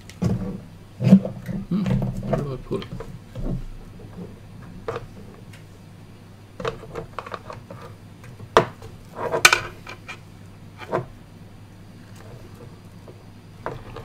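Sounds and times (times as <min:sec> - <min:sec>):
cables and connectors rustling: 0:00.0 - 0:05.8.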